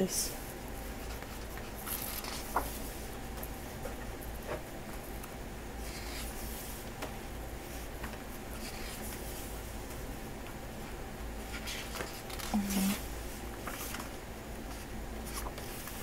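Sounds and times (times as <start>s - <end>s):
paper pages swishing: 1.0s - 3.1s.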